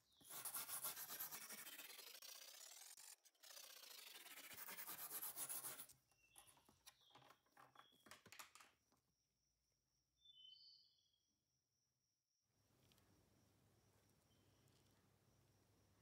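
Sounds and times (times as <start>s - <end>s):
brush scrubbing metal: 0.3s - 5.8s.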